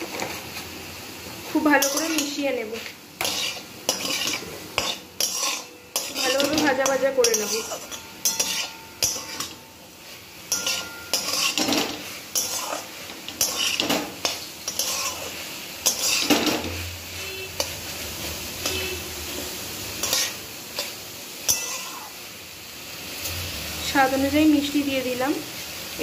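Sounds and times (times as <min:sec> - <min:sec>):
faint sizzle of frying: 0:00.0 - 0:26.0
metal spatula scraping a pan: 0:01.6 - 0:22.2.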